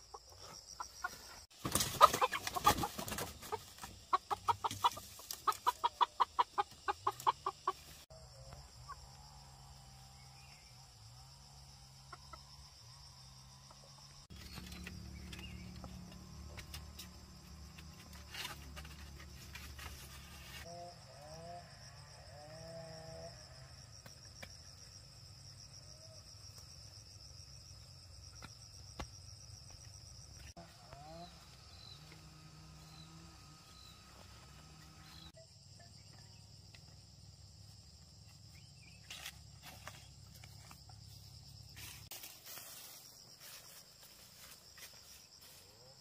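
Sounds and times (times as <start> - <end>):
chicken clucks: 0.0 - 8.0
insects droning: 0.0 - 46.0
knocks and rustles of bamboo coop: 1.0 - 7.8, 14.3 - 20.7.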